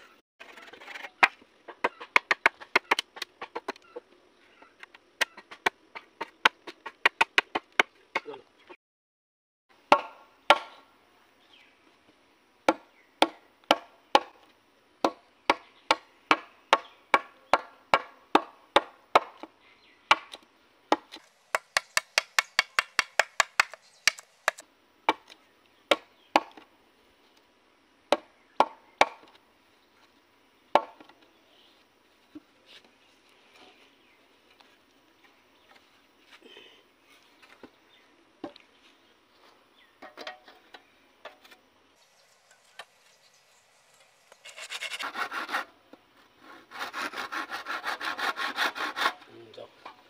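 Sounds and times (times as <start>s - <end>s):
machete chopping wood: 9.9s - 10.8s, 12.7s - 14.4s, 15.0s - 19.5s, 20.1s - 26.6s, 28.1s - 29.3s.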